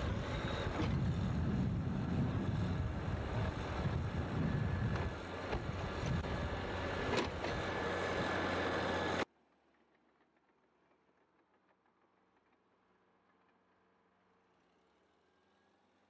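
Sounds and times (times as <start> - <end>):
backhoe engine running under load: 0.0 - 9.2.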